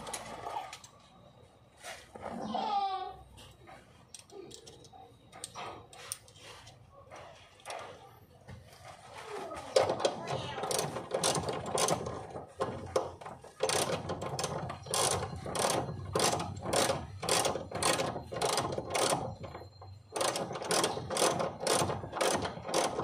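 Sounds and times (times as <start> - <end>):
ratchet wrench clicking: 10.6 - 12.0, 13.5 - 19.5, 20.2 - 23.0.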